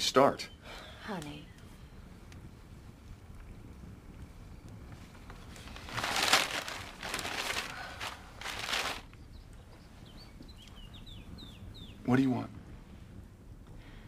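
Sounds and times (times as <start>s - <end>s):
newspaper pages rustling: 5.3s - 9.1s
faint bird chirps: 9.1s - 12.2s.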